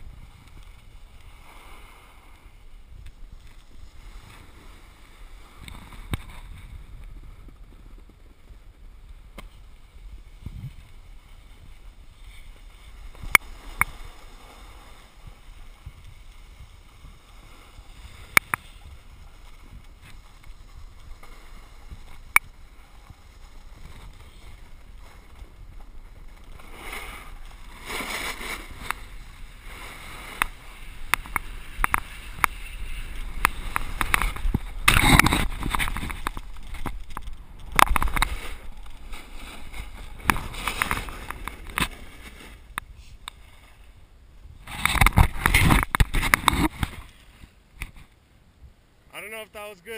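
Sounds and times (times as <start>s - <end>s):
skis hissing on packed snow: 0.9s - 2.8s, 9.8s - 34.4s.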